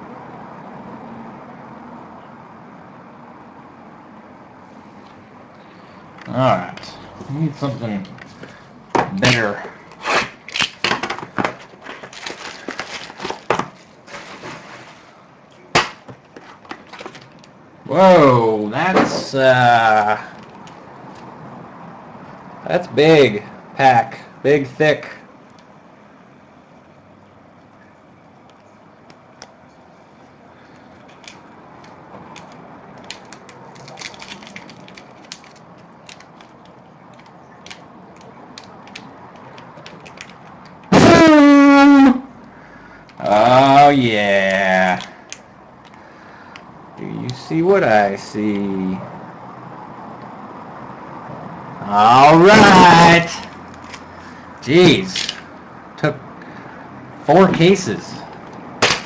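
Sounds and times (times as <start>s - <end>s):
plastic wrapper crinkling: 10.5s - 15.1s, 32.4s - 40.8s.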